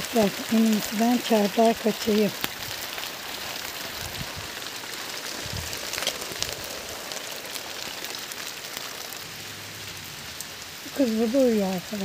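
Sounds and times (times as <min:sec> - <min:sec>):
rain hissing: 0:00.0 - 0:12.0
raindrops ticking on leaves: 0:00.0 - 0:12.0.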